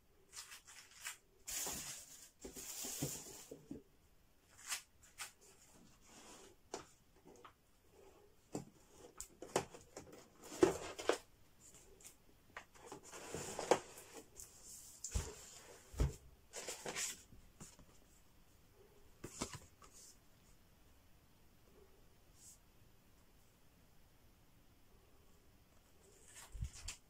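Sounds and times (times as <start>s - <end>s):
cardboard rustling: 0.3s - 3.8s, 8.5s - 17.9s.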